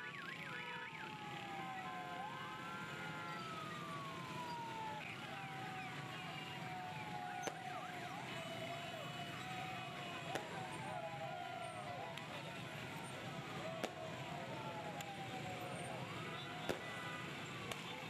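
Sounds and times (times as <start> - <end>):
wailing siren: 0.0 - 18.0.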